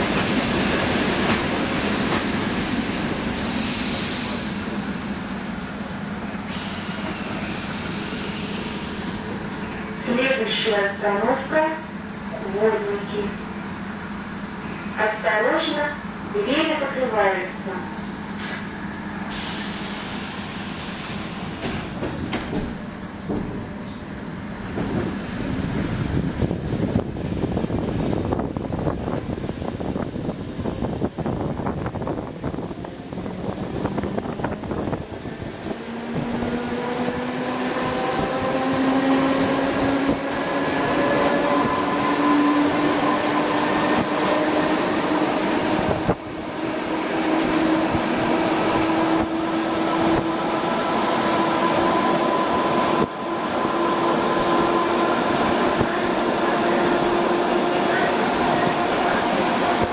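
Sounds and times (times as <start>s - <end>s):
train wheels clattering on track: 0.0s - 9.4s, 18.4s - 25.9s.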